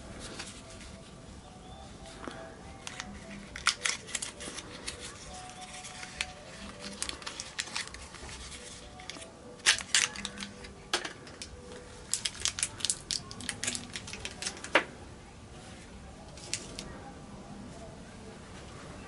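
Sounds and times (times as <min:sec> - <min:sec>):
plastic wrapping crinkling: 0:02.1 - 0:14.9, 0:16.3 - 0:16.9.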